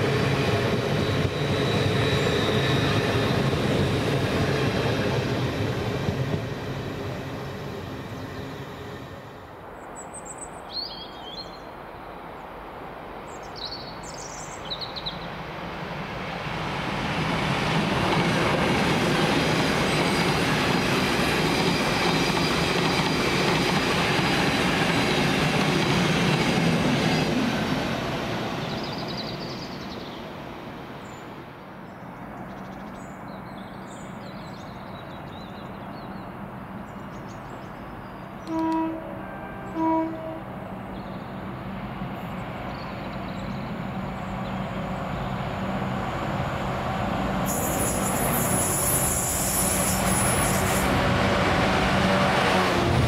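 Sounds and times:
train passing at speed: 0.0 - 53.0
train horn toots: 38.4 - 40.6.

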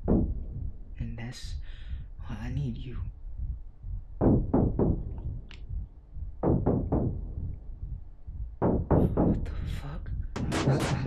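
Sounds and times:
heavy knocks: 0.0 - 1.0, 4.0 - 11.0.

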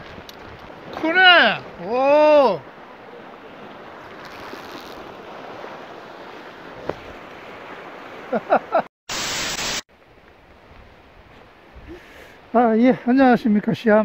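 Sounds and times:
surf washing against rocks: 0.0 - 8.9
burst of loud hiss: 9.1 - 9.9.

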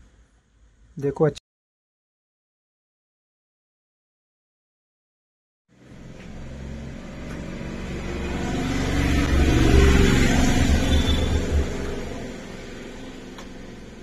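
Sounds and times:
vehicle engine passing: 5.8 - 14.0.

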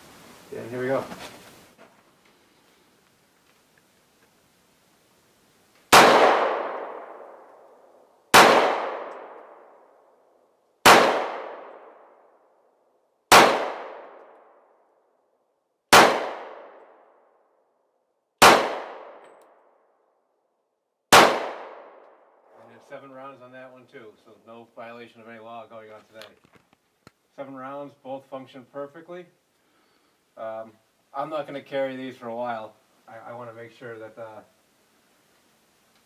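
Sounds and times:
pistol shots with echo: 5.9 - 7.5, 8.3 - 9.7, 10.8 - 12.1, 13.3 - 14.4, 15.9 - 17.0, 18.4 - 19.3, 21.1 - 22.0.

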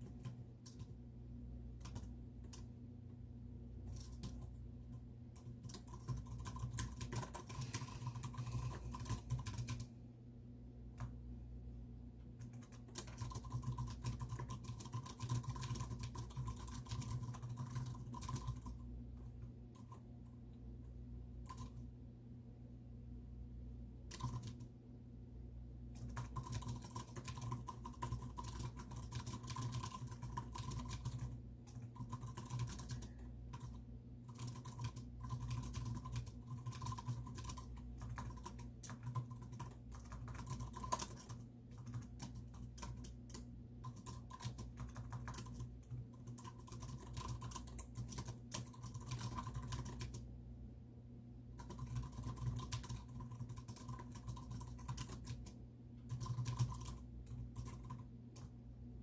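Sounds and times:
typing on keyboard: 0.0 - 1.0, 1.8 - 2.7, 3.9 - 9.9, 12.4 - 20.1, 21.4 - 21.9, 24.1 - 24.7, 25.9 - 50.3, 51.6 - 58.6.

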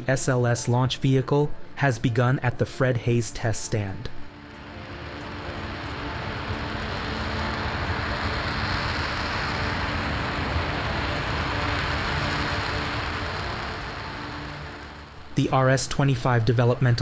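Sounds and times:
rocket engine roaring: 4.2 - 15.7.

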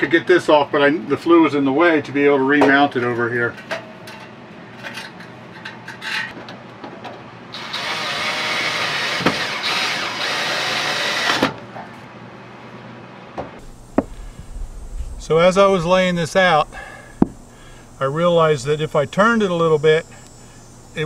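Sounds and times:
cordless drill driving screw into metal: 7.6 - 11.5.

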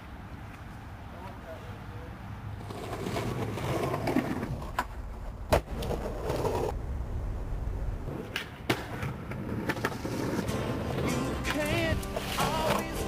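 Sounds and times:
skateboard wheels rolling on concrete: 0.0 - 13.0
skateboard clacking on ground: 2.6 - 6.8, 8.1 - 13.0.

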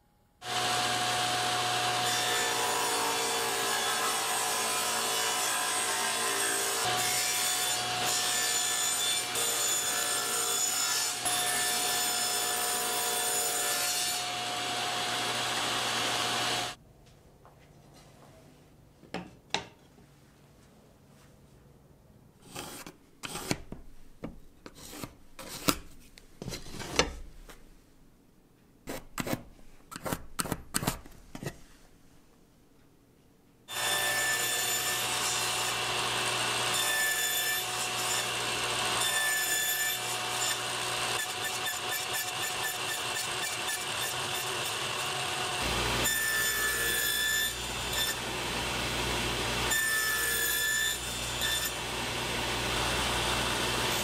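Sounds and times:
table saw running: 0.4 - 3.3, 12.7 - 16.8, 33.7 - 41.6, 42.4 - 54.0.

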